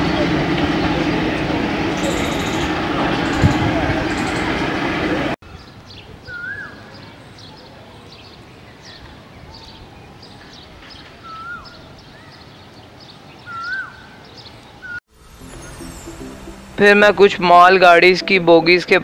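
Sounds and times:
train rumbling: 0.0s - 5.4s.

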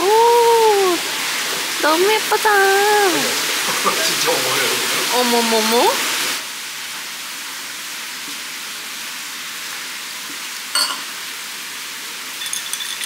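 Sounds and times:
room noise hiss: 0.0s - 13.0s
tableware clink: 10.8s - 11.1s, 12.4s - 13.0s.

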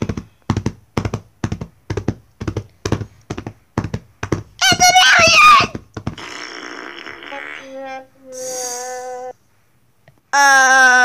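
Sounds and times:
horse hooves trotting: 0.0s - 6.2s
loud high wavering cry: 4.6s - 5.7s, 8.3s - 9.2s.

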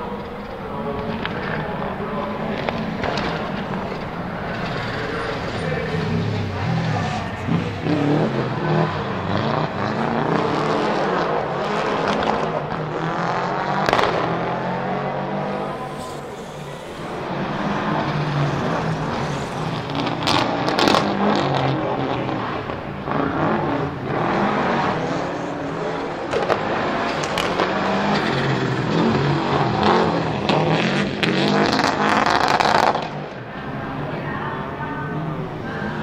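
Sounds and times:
rally car engine revving: 0.0s - 36.0s
sharp exhaust cracks: 0.1s - 23.2s.

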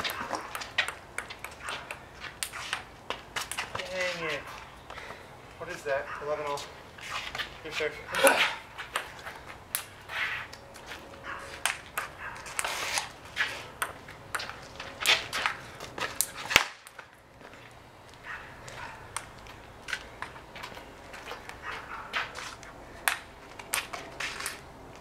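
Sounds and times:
ping-pong ball clicking: 0.1s - 2.9s.

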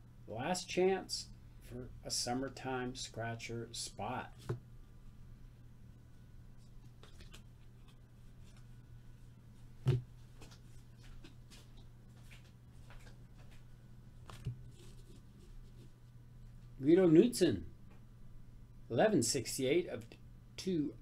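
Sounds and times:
steady low hum: 0.0s - 21.0s
cards rustling and clicking: 7.0s - 8.7s.

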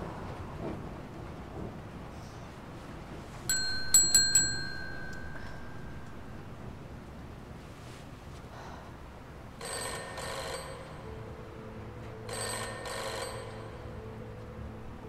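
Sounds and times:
faint low hum: 0.0s - 9.7s
telephone bell ringing: 3.5s - 6.4s, 9.6s - 11.3s, 12.1s - 14.0s.

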